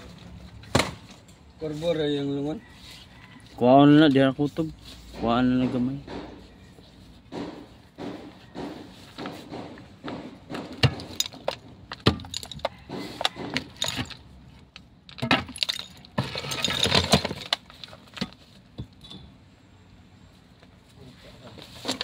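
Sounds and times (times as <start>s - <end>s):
rubble clattering and falling: 10.7s - 19.0s.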